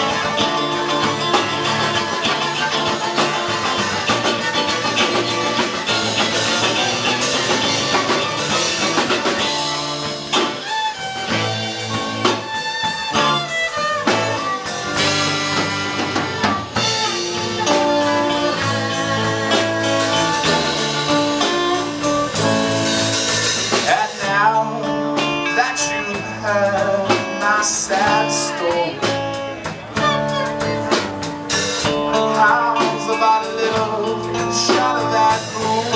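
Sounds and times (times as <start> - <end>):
saxophone: 0.0 - 23.8, 28.1 - 32.4
drum kit: 0.0 - 35.9
electric guitar: 0.0 - 35.9.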